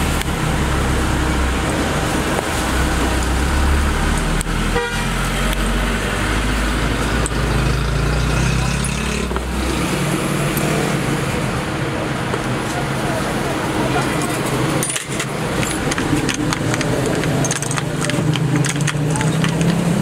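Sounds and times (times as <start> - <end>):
road traffic din: 0.0 - 20.0
car horns: 4.6 - 5.5.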